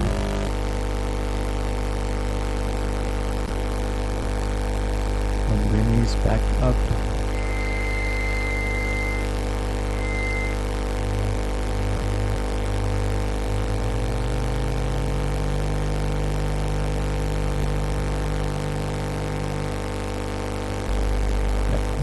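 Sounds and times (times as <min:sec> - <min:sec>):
buzzy electronic drone: 0:00.0 - 0:00.9, 0:03.5 - 0:19.3.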